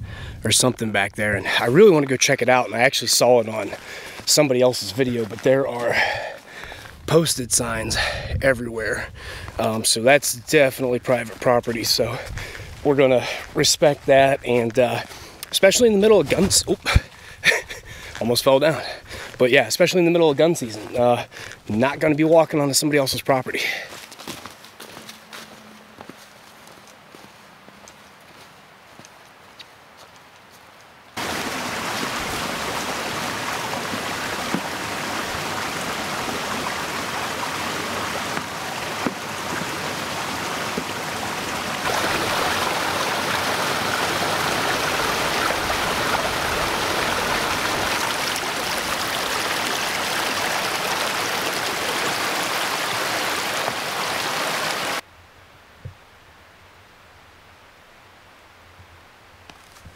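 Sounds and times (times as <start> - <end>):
running water rushing: 0.0 - 25.0, 31.2 - 55.0.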